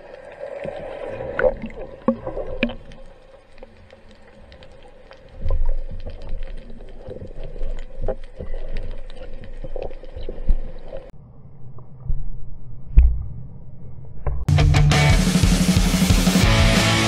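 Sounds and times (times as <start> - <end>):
muffled underwater sloshing: 0.0 - 11.1
underwater clicks and knocks: 1.4 - 3.0.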